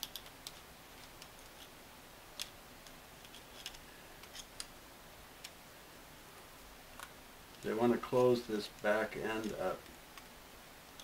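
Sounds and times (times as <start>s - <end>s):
pliers clicking on metal parts: 0.0s - 1.7s.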